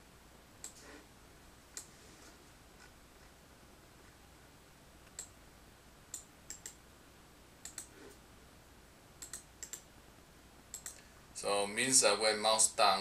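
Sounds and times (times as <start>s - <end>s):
computer mouse clicks: 0.6s - 0.9s, 1.7s - 2.0s, 5.0s - 5.4s, 6.1s - 6.8s, 7.6s - 8.2s, 9.2s - 9.9s, 10.7s - 11.1s.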